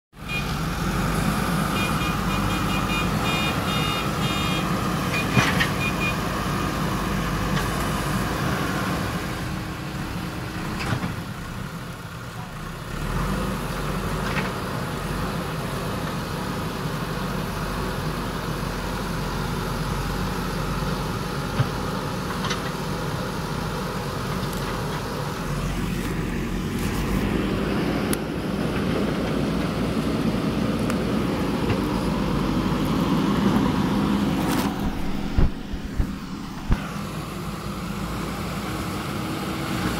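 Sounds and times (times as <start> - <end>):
diesel engine running under load: 0.2 - 39.9.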